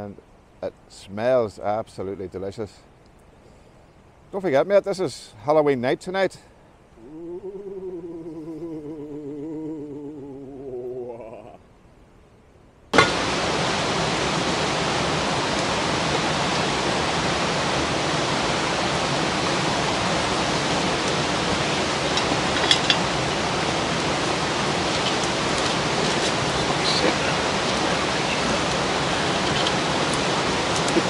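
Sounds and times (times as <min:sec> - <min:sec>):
faint clicks: 0:03.0 - 0:03.3
heavy rain on tent fabric: 0:12.9 - 0:31.0.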